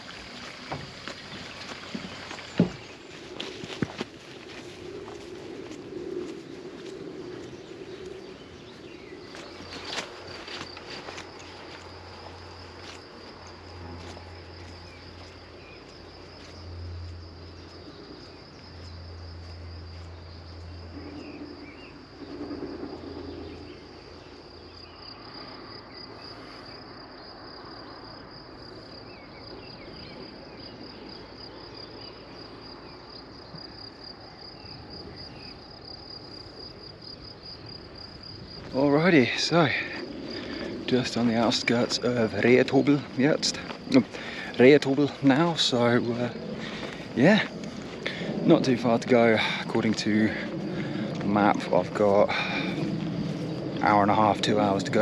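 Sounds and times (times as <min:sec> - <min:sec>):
crickets chirping: 0:00.0 - 0:55.0
low rumble: 0:39.8 - 0:55.0.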